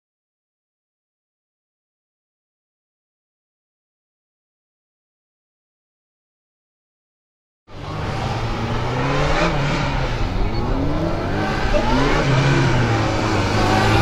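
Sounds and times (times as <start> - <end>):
motorcycle engine revving: 7.7 - 14.0.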